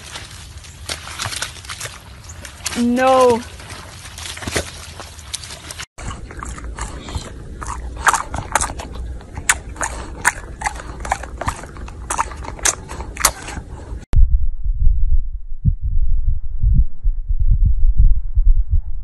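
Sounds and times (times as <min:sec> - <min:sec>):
dog crunching popcorn: 0:06.0 - 0:13.6
dog heavy breathing: 0:06.0 - 0:14.1.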